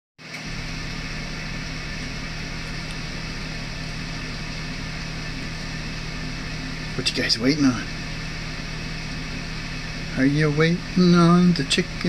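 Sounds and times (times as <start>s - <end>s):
machine hum and hiss: 0.2s - 12.0s.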